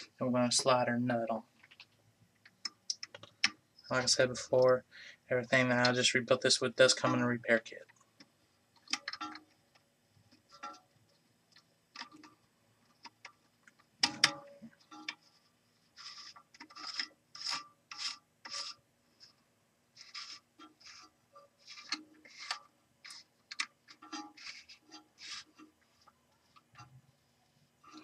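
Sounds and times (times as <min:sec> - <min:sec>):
plastic nut rasping on threads: 0:16.0 - 0:19.4, 0:20.0 - 0:25.8.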